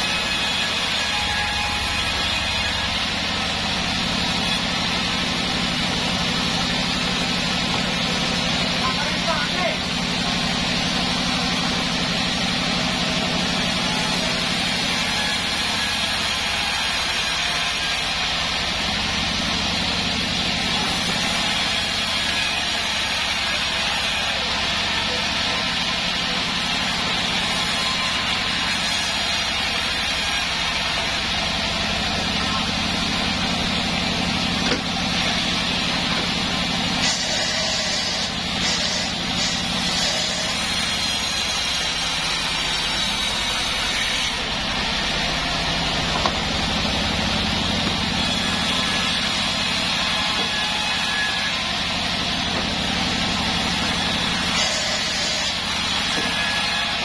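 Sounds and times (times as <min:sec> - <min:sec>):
band saw drone: 0:00.0 - 0:57.0
wood knocking on saw table: 0:34.6 - 0:34.9, 0:46.1 - 0:46.5.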